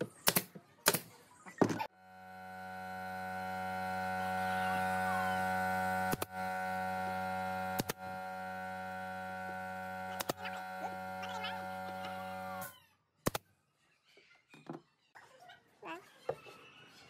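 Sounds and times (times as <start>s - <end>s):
electric hum: 2.0s - 12.7s.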